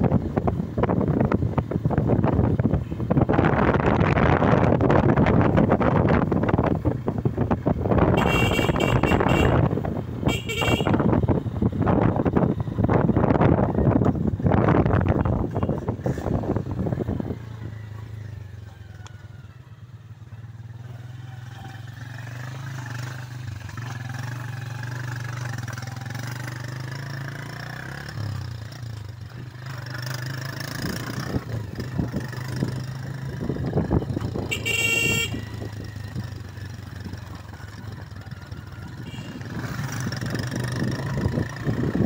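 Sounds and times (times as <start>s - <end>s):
motorcycle engine running: 0.0s - 42.0s
motorcycle horn toot: 8.1s - 11.2s, 34.4s - 35.7s, 39.0s - 39.5s.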